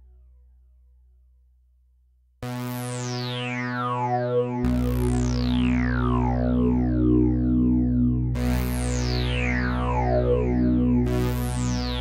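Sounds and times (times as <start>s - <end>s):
lower synthesizer note: 2.4s - 12.0s
synthesizer note filter sweep: 2.4s - 12.0s.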